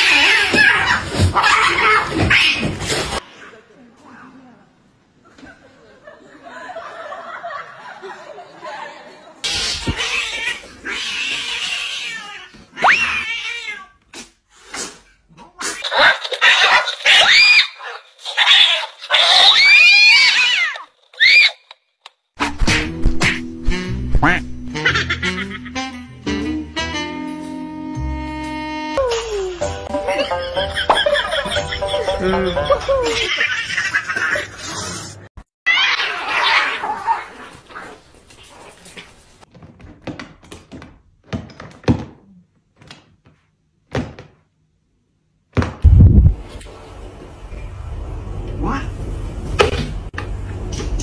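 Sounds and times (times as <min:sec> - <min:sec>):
cats yowling: 0:00.0 - 0:02.7, 0:09.5 - 0:13.9, 0:15.6 - 0:21.6, 0:35.7 - 0:37.4
cats hissing: 0:00.0 - 0:03.2, 0:09.4 - 0:21.5, 0:34.2 - 0:39.2.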